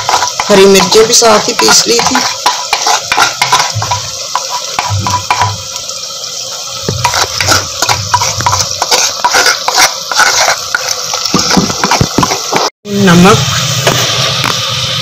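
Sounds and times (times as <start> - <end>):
paste sizzling in hot oil: 0.0 - 15.0.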